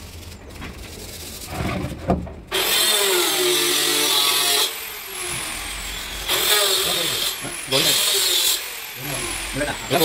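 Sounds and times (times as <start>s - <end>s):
power tool motor whining: 2.5s - 10.0s.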